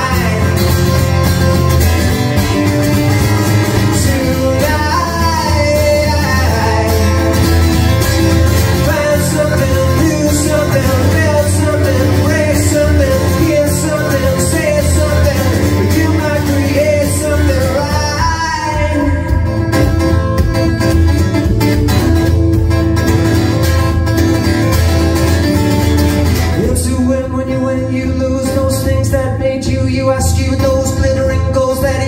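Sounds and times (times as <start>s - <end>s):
man singing: 0.0s - 1.5s, 2.3s - 20.0s, 26.4s - 32.0s
acoustic guitar strummed: 0.0s - 32.0s.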